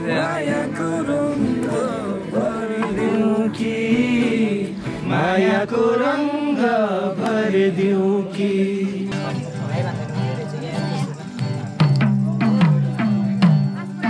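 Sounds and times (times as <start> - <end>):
song with wavering singing voice: 0.0 - 9.5.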